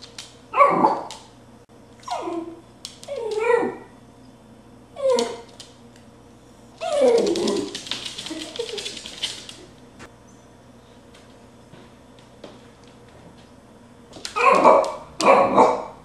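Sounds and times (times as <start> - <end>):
dog barking and yipping: 0.5 - 1.1, 14.4 - 16.0
rapid scratchy clatter: 6.9 - 9.7.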